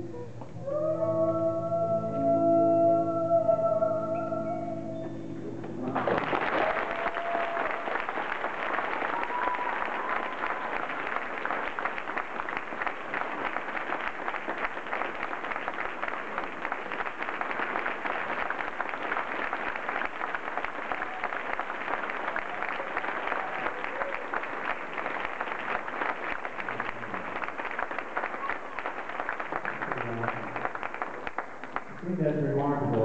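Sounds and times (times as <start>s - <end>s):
audience applauding: 5.8s - 33.0s
voices cheering: 5.9s - 11.2s, 20.6s - 25.4s.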